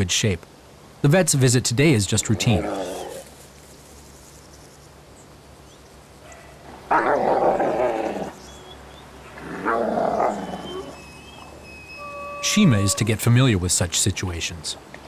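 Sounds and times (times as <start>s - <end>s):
wolves growling: 2.3s - 3.3s, 6.9s - 8.5s, 9.3s - 11.4s.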